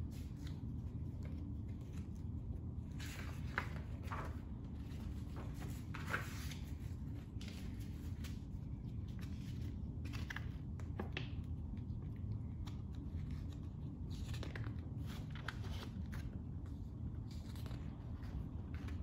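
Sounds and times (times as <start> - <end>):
low room hum: 0.0 - 19.0
paper pages rustling: 0.0 - 19.0
page being turned: 2.8 - 11.5.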